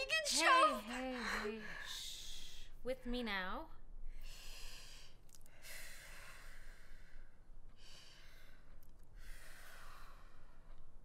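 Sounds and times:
slow deep breathing: 0:04.1 - 0:11.0.

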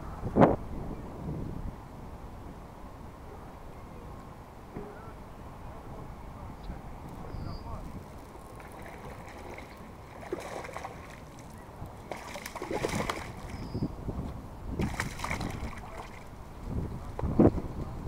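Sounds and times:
fish splashing in water: 0:08.3 - 0:13.7, 0:14.8 - 0:16.3.

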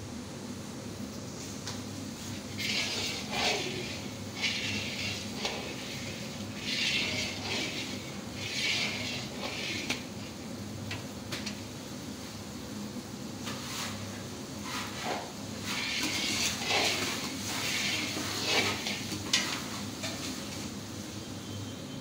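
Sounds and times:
metal spatula scraping a wok: 0:02.3 - 0:10.4, 0:14.6 - 0:20.7.

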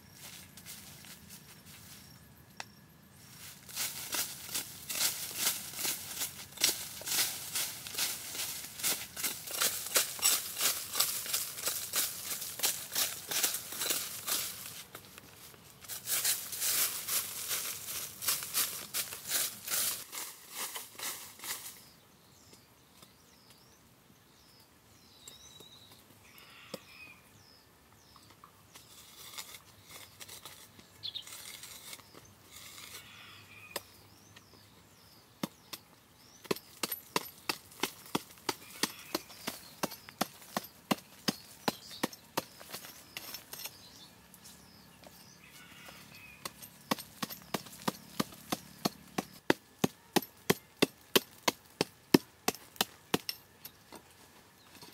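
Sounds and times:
hoe chopping into dirt: 0:36.4 - 0:43.8, 0:46.4 - 0:53.4.

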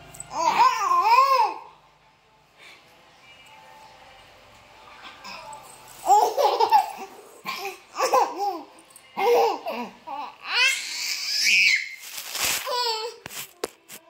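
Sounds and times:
baby giggling: 0:06.0 - 0:10.3.

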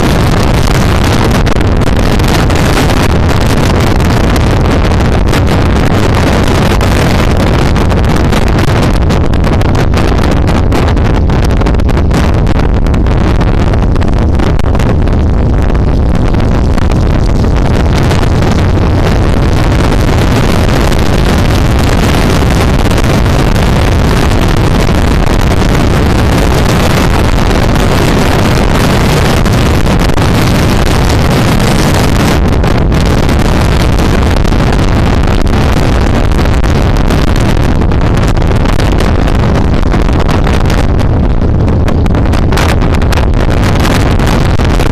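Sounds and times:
motorcycle engine: 0:00.0 - 0:27.9
road noise: 0:00.0 - 0:44.9
wind buffeting microphone: 0:00.0 - 0:44.9.

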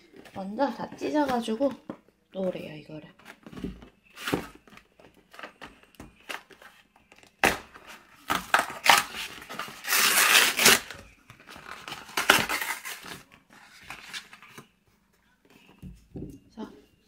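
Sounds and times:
cardboard box tearing: 0:08.3 - 0:11.0, 0:11.8 - 0:13.2
plastic wrapper crinkling: 0:08.4 - 0:14.6.

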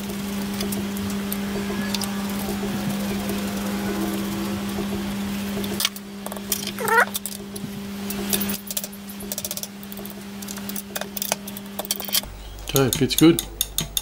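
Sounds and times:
steady low hum: 0:00.0 - 0:06.9, 0:12.2 - 0:14.0
short rising squeak: 0:01.3 - 0:05.6
small metal clicks and taps: 0:08.3 - 0:14.0.

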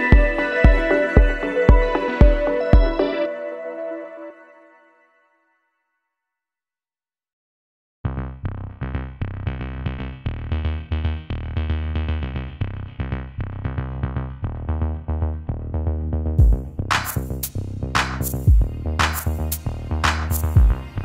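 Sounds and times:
music with deep bass beat: 0:00.0 - 0:03.1, 0:08.2 - 0:21.0.

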